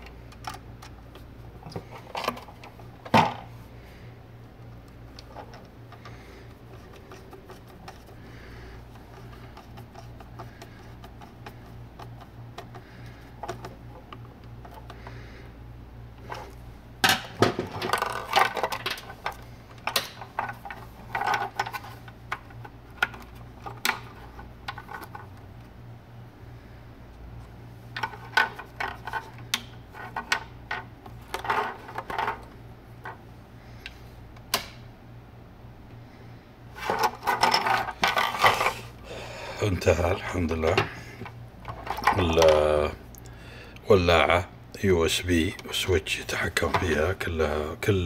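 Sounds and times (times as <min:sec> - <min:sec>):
hands handling wires and plastic box: 0:00.0 - 0:03.5, 0:04.5 - 0:08.2, 0:08.8 - 0:15.1, 0:16.2 - 0:25.7, 0:27.9 - 0:33.2, 0:36.8 - 0:38.8, 0:40.6 - 0:42.6
low steady hum: 0:00.0 - 0:48.0.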